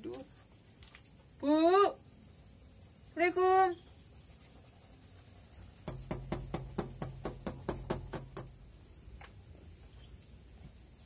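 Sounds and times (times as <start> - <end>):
crickets trilling: 0.0 - 11.0
knocking on glass window: 5.8 - 8.7.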